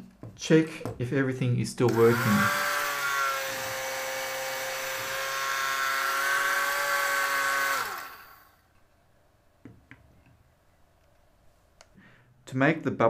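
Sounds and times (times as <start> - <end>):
small motors whining: 1.9 - 8.6.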